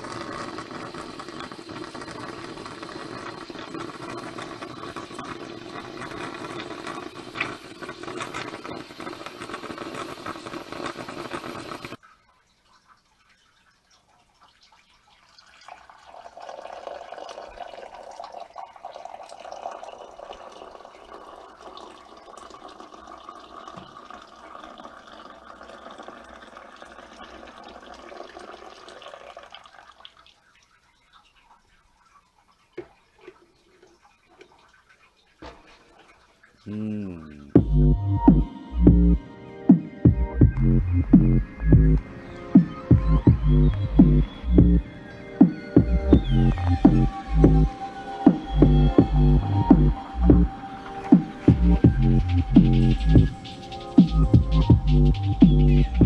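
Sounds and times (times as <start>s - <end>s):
espresso machine hissing and sputtering: 0.0s - 12.0s
coffee pouring into a mug: 0.0s - 31.6s, 32.8s - 37.6s.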